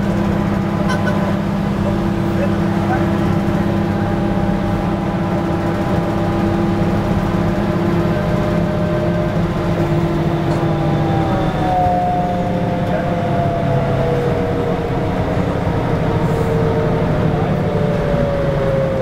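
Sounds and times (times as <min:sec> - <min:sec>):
bus engine running with whine: 0:00.0 - 0:19.0.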